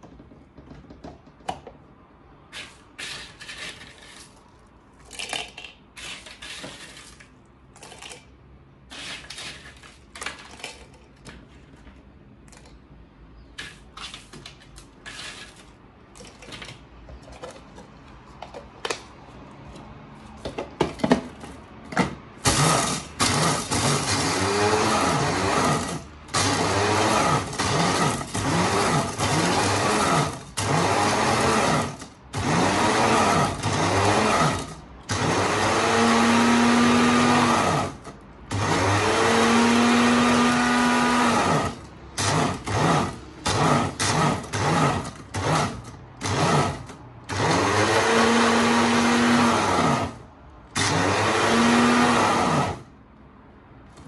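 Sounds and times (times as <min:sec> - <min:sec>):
electric chopper grinding bread: 0:22.4 - 0:52.9.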